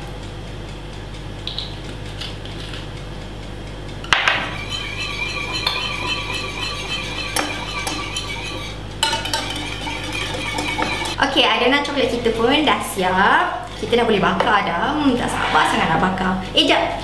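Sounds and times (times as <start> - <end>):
whisk scraping a ceramic bowl: 4.4 - 16.7.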